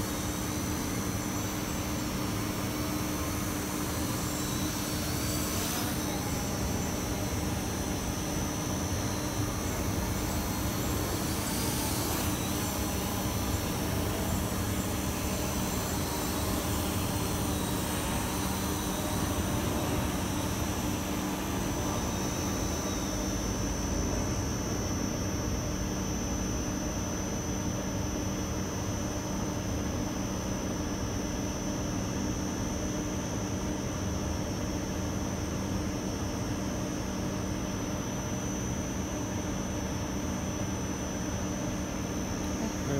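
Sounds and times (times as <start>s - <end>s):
drone propellers buzzing: 2.5s - 22.8s.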